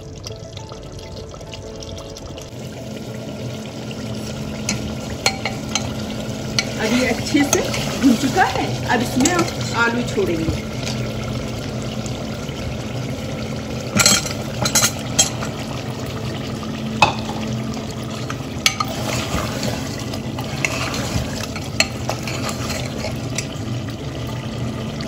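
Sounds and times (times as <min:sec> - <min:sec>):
meat and onion sizzling: 0:02.5 - 0:25.0
ladle clinking against pot: 0:04.6 - 0:06.8, 0:13.9 - 0:15.5.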